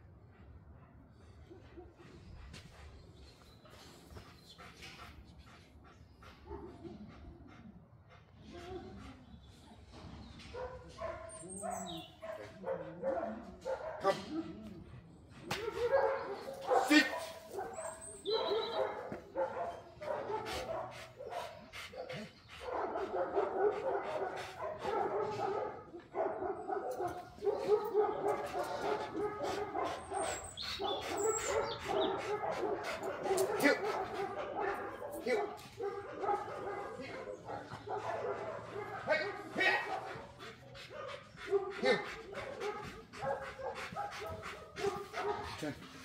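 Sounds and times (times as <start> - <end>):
dog barking and whining: 15.5 - 21.4, 22.0 - 40.3.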